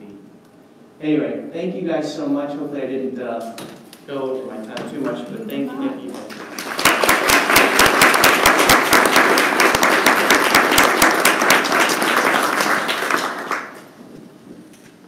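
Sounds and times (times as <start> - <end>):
audience applauding: 6.0 - 14.0.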